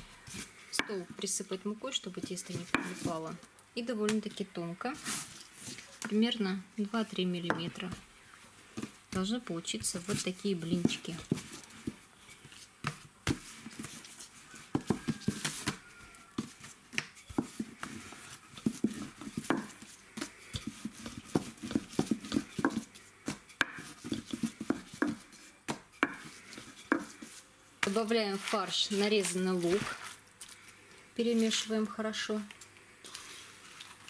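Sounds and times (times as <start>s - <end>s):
soft handling noise: 26.2s - 34.0s.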